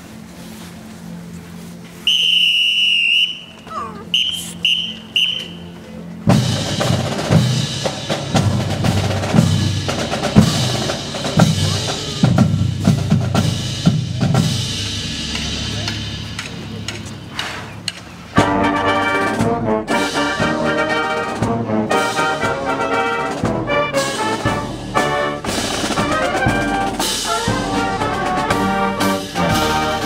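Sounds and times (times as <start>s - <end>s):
whistle blasts: 2.0s - 5.8s
marching drumline cadence: 2.1s - 30.0s.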